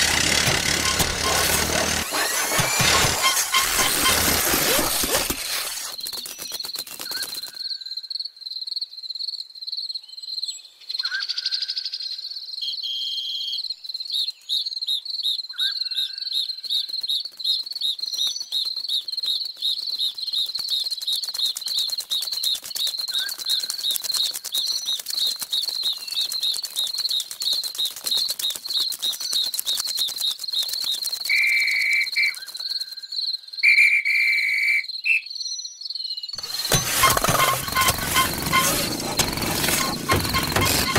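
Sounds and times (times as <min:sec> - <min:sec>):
fast fine ticking: 0:00.0 - 0:06.7, 0:36.4 - 0:40.9.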